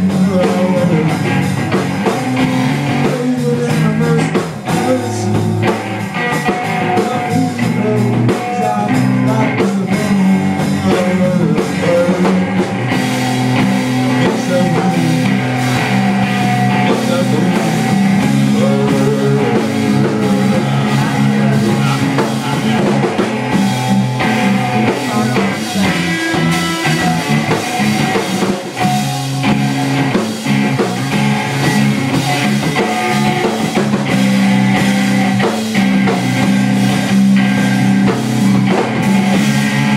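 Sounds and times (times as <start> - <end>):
bass guitar: 0.0 - 39.9
driving drum beat: 0.0 - 39.9
electric guitar: 0.0 - 39.9.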